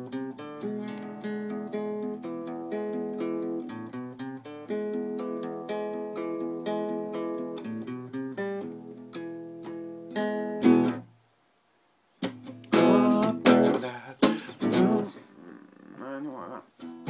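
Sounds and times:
out of tune acoustic guitar: 0:00.0 - 0:11.2, 0:12.1 - 0:17.0.

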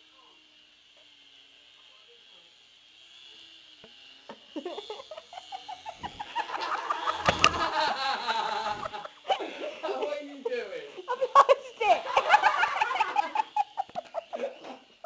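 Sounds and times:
man laughing hard: 0:04.6 - 0:09.9, 0:11.0 - 0:14.9.

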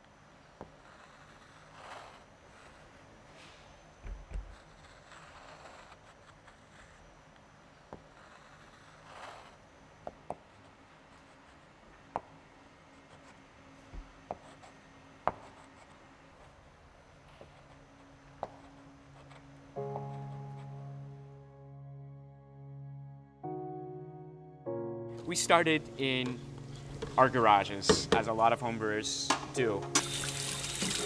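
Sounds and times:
chalk scratching on chalkboard: 0:00.6 - 0:03.0, 0:04.4 - 0:07.0, 0:08.0 - 0:09.6
chalk tapping on board: 0:14.0 - 0:15.8.

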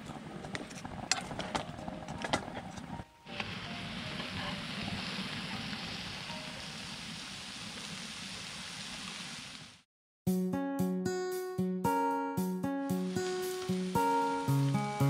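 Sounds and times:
food sizzling in a pan: 0:03.3 - 0:09.8, 0:12.9 - 0:15.0
acoustic guitar music: 0:10.3 - 0:15.0.

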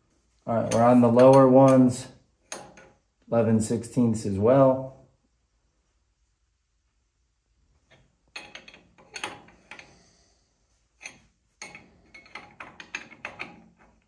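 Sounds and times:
wrench clinking on metal fittings: 0:00.6 - 0:03.0, 0:11.0 - 0:14.0.

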